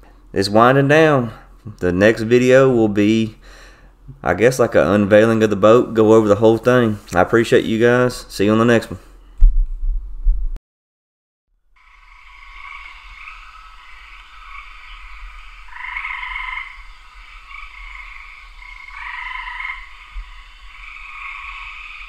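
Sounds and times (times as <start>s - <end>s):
faint low rumble: 8.4s - 10.6s
frogs calling: 11.8s - 22.0s.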